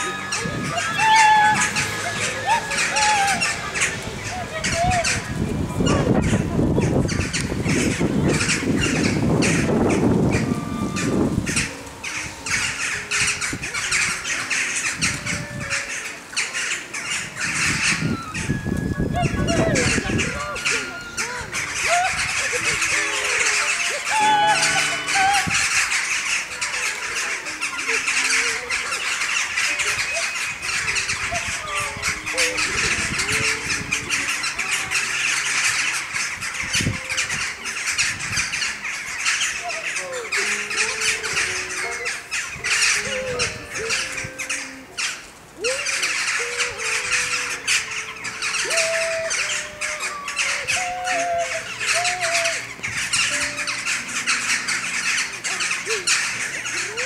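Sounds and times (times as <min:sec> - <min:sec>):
flock of crows calling: 0:00.0 - 0:57.0.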